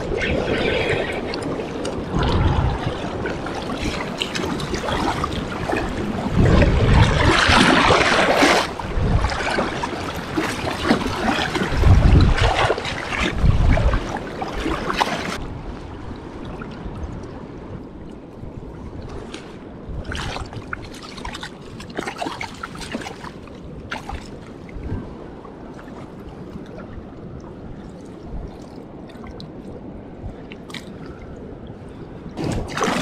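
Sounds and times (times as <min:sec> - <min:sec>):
water splashing: 0:00.0 - 0:15.4, 0:32.4 - 0:33.0
fast river water rushing: 0:00.0 - 0:15.5, 0:32.4 - 0:33.0
wind rumble on microphone: 0:00.0 - 0:33.0.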